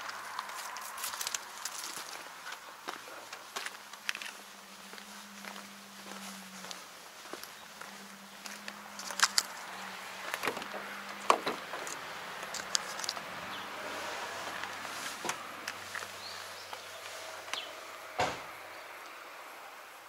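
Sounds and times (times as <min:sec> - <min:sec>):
footsteps on dirt: 0:00.0 - 0:17.7
handling clicks and knocks: 0:10.3 - 0:13.3
dull thump: 0:18.2 - 0:18.5.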